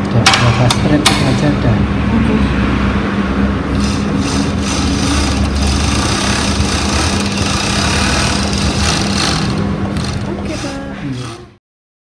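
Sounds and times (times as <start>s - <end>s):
overlock sewing machine running: 3.7s - 11.6s.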